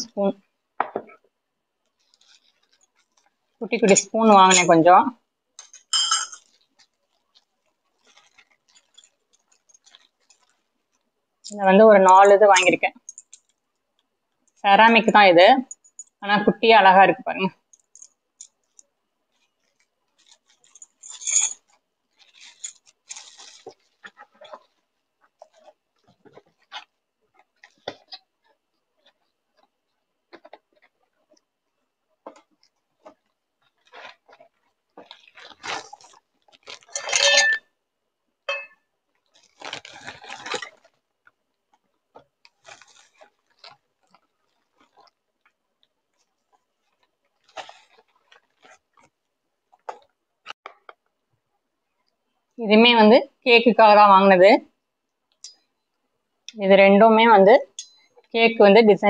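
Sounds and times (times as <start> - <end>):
bubble wrap and plastic bag rustling: 1.1 - 4.6, 6.4 - 13.5, 17.7 - 31.6, 32.2 - 37.0, 39.0 - 50.5
ceramic spoons clinking: 5.7 - 6.5, 37.0 - 37.7, 38.5 - 38.8.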